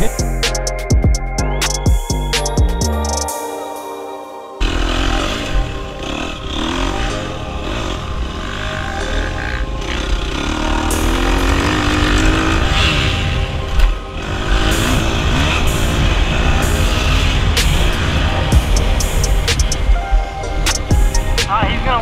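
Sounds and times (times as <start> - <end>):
music with heavy beat: 0.0 - 4.0, 14.6 - 21.6
dirt bike engine revving: 4.6 - 19.9.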